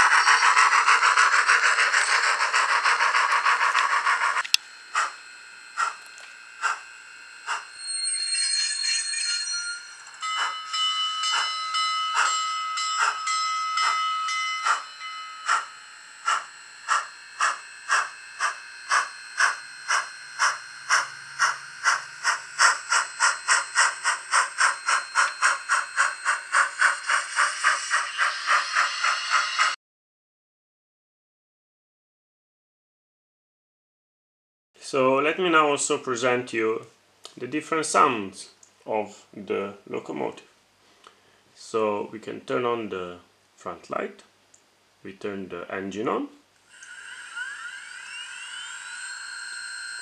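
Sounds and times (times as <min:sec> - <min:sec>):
steam hiss: 0:00.0 - 0:04.4, 0:15.5 - 0:29.8
steam locomotive chuffs: 0:00.0 - 0:29.8.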